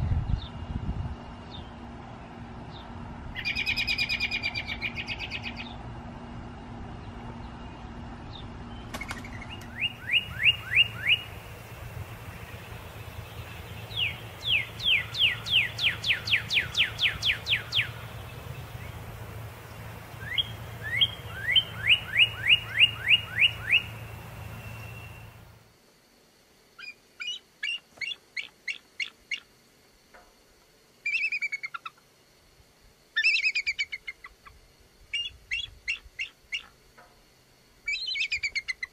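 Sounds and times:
bird chittering calls: 2.7 - 5.8, 7.3 - 25.4, 26.8 - 29.5, 31.0 - 32.0, 33.2 - 36.8, 37.8 - 38.9
bird whistling down-slurred notes: 8.8 - 11.4, 13.4 - 18.1, 20.2 - 25.4.

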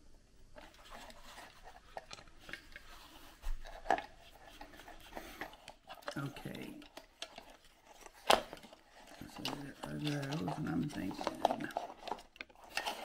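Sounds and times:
screwdriver scraping plastic: 0.6 - 13.0.

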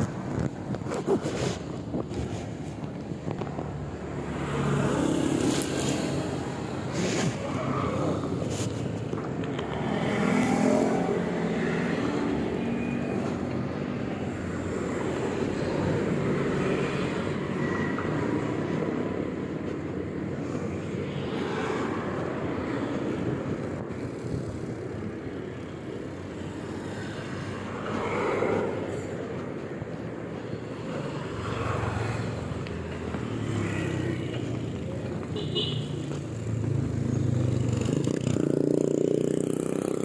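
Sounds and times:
road traffic noise: 0.0 - 40.0
wind rushing over microphone: 20.0 - 25.6.

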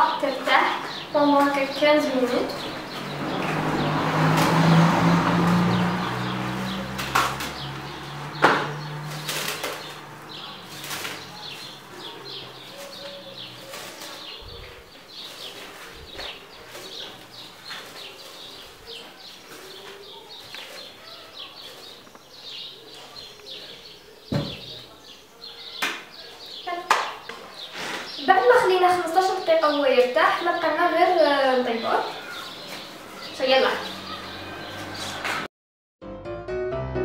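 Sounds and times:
cling film crinkling: 8.8 - 21.0.

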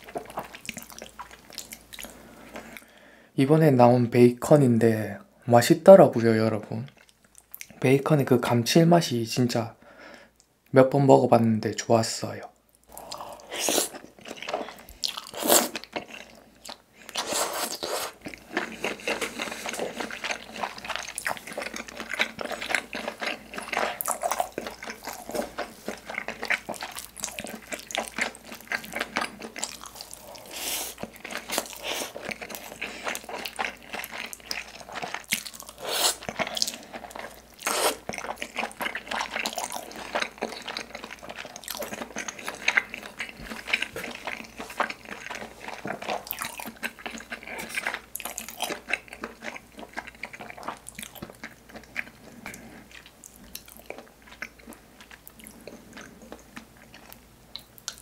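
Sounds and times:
wet sticky chewing: 12.9 - 58.0
slurp: 37.6 - 38.1.

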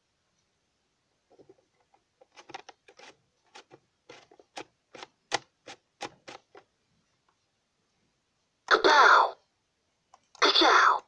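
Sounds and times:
clicks and taps on plastic toy: 2.2 - 6.7.

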